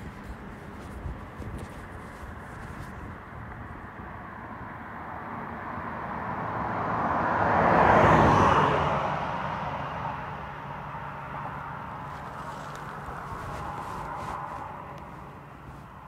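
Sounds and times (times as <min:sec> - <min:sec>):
vehicle passing by: 0:05.1 - 0:16.0.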